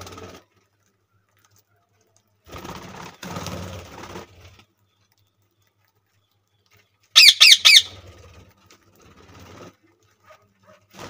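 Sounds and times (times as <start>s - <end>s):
bird wing flaps: 2.4s - 4.6s
budgie squawks: 7.2s - 8.0s.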